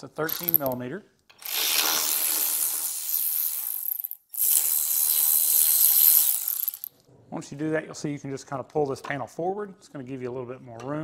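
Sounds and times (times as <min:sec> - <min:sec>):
cordless electric ratchet running: 0:00.3 - 0:00.8, 0:01.4 - 0:06.9.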